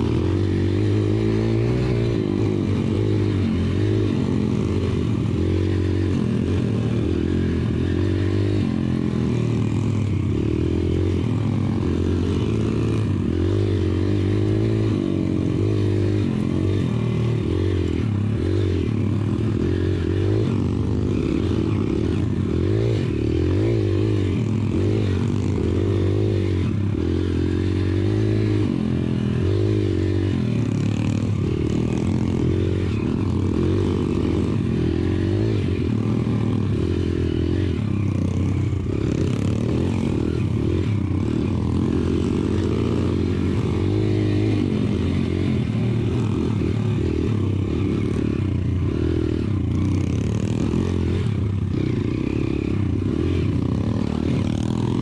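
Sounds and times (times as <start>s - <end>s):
motorbike engine revving: 0.0s - 55.0s.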